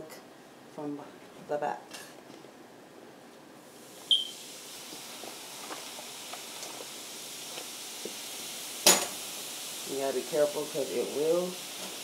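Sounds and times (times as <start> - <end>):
mixture fizzing: 3.7 - 12.0.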